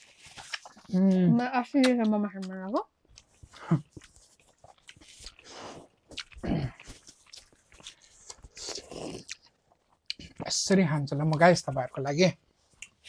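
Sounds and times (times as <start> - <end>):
close chewing mouth clicks: 3.1 - 10.4.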